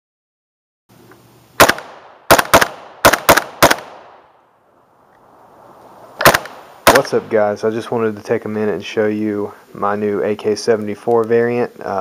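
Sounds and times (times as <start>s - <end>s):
rifle shots with echo: 1.6s - 4.4s, 6.2s - 7.3s.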